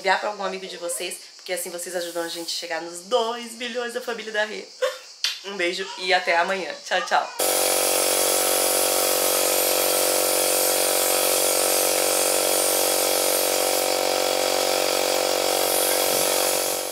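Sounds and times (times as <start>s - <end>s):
electric air pump droning: 7.4s - 16.9s.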